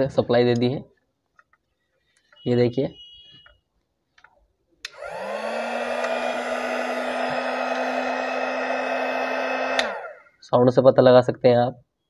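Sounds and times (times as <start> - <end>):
heat gun switch click: 4.8 - 5.3, 5.9 - 6.3, 9.6 - 10.1
heat gun fan whining and humming: 4.8 - 10.3.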